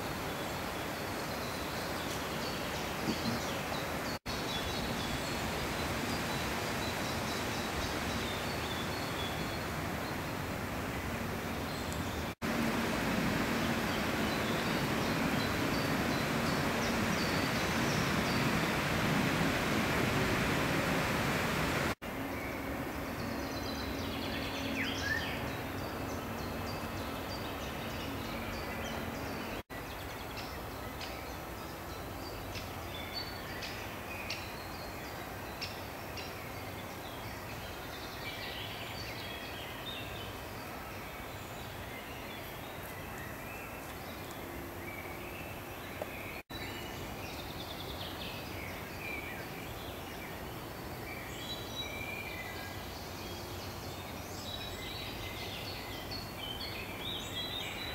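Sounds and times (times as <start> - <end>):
outdoor background hiss: 0.0 - 57.9
birds chirping: 0.2 - 31.4.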